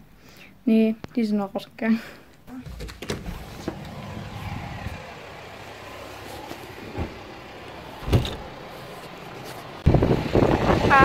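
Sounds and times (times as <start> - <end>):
faint background noise: 0.0 - 3.1.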